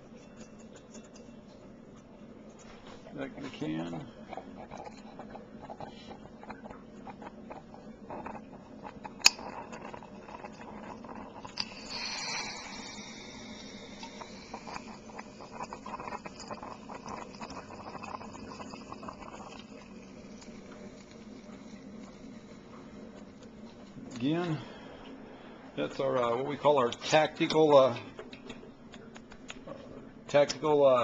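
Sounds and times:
torch flame crackling and popping: 3.1 - 24.4
high-pitched hiss: 11.6 - 14.8.

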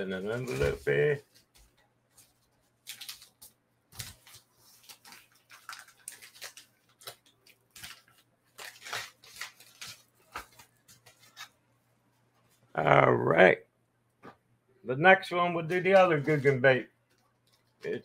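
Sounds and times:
paper envelope rustling: 0.1 - 11.6, 15.6 - 18.0.

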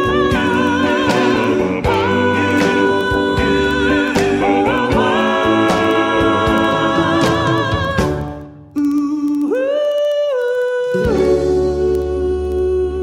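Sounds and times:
steady beat: 0.0 - 8.5
song with wavering vocals: 0.0 - 13.0.

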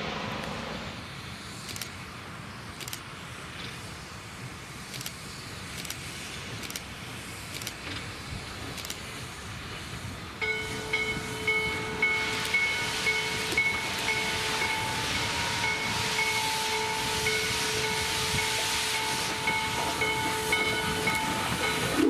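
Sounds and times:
steam hissing: 0.0 - 22.0
steam locomotive exhaust chuffs: 0.0 - 22.0
steam whistle blast: 10.5 - 22.0.

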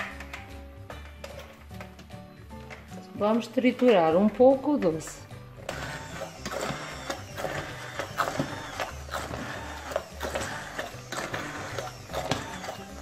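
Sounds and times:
background music: 0.0 - 13.0
immersion blender running: 5.6 - 13.0.

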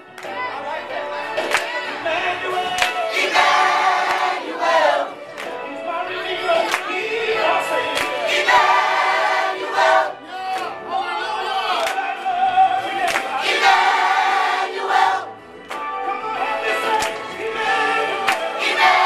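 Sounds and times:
adults and children singing: 1.3 - 5.2, 6.3 - 10.2, 11.6 - 15.3, 16.4 - 19.0.

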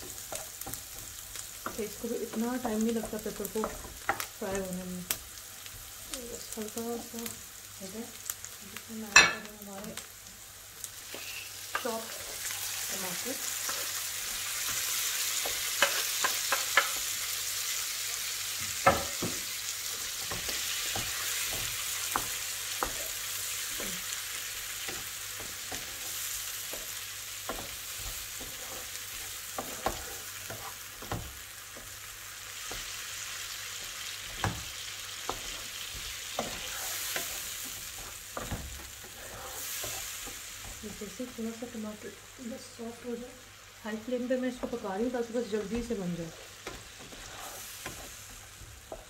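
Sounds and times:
vegetables sizzling in a frying pan: 0.0 - 49.0
wooden spatula knocking a pan: 18.8 - 19.5, 24.8 - 32.0, 33.8 - 41.0.

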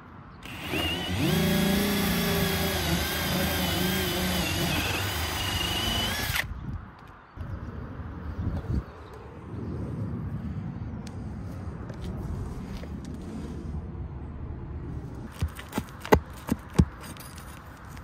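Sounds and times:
cordless drill boring into roof: 0.4 - 6.5.

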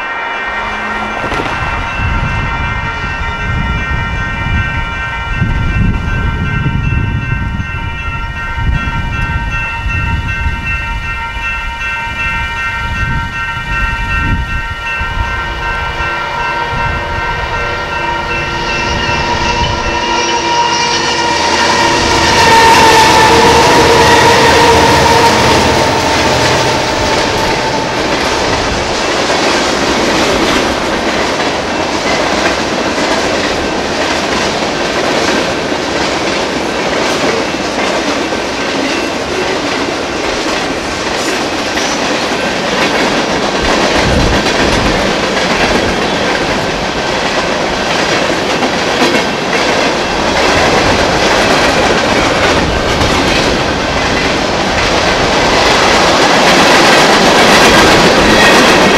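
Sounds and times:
steady tone: 0.0 - 5.4, 13.3 - 32.0
freight train rolling on rails: 0.0 - 58.9.

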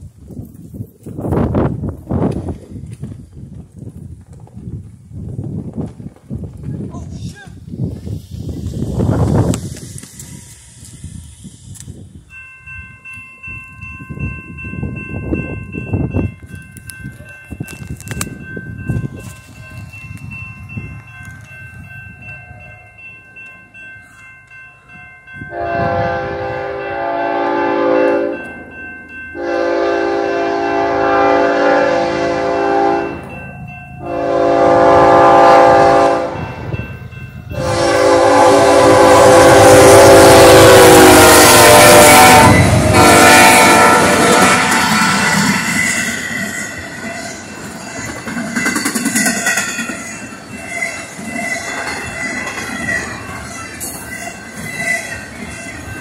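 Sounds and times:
street noise: 0.0 - 56.0
wind: 0.0 - 56.0
train air horn blasts: 25.5 - 28.4, 29.4 - 33.2, 34.0 - 36.7, 37.5 - 46.0.

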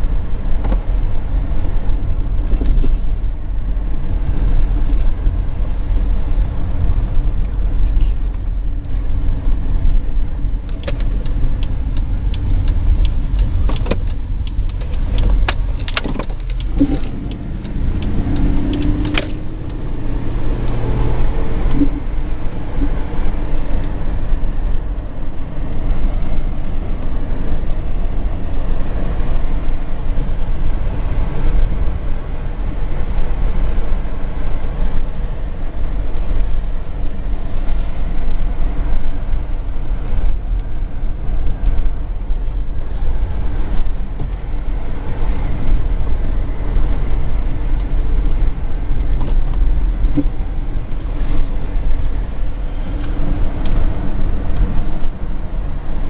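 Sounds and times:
car engine and tyre rumble: 0.0 - 56.0
sharp clicks and knocks: 9.8 - 19.9.

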